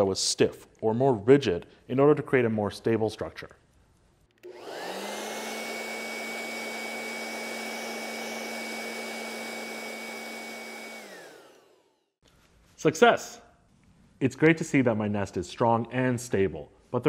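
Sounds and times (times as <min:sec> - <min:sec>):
electric box fan running: 0:04.4 - 0:11.9.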